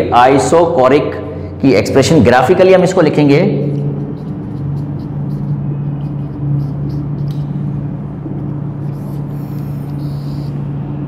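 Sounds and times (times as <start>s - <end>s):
low machine hum: 0.0s - 11.0s
marker scratching on whiteboard: 3.8s - 7.8s, 8.7s - 10.7s.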